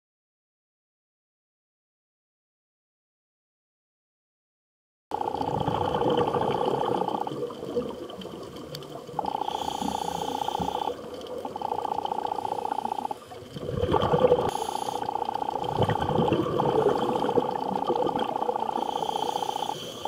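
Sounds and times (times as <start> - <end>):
diver breathing through regulator: 9.2 - 13.2, 14.0 - 16.0, 16.6 - 20.0
underwater hiss: 9.3 - 11.3, 12.0 - 15.4, 18.6 - 20.0.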